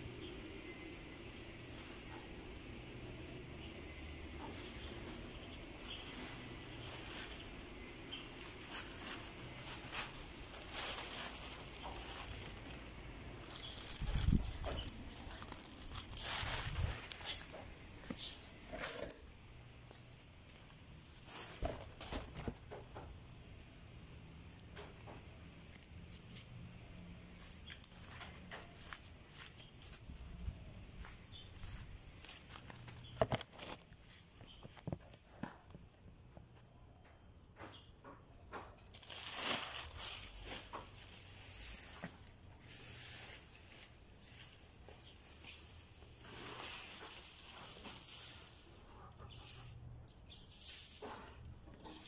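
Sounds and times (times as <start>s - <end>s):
handling rustles and knocks: 4.4s - 18.6s, 19.9s - 23.2s, 27.4s - 36.7s
broom sweeping across paving: 42.6s - 44.4s, 45.2s - 48.6s, 50.5s - 52.0s.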